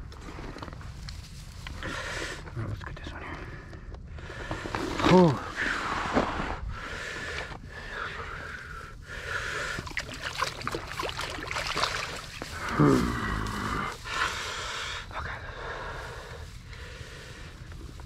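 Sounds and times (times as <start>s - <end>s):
tall grass rustling: 0.0s - 2.5s, 8.0s - 18.0s
short low vocal sound: 12.5s - 14.0s.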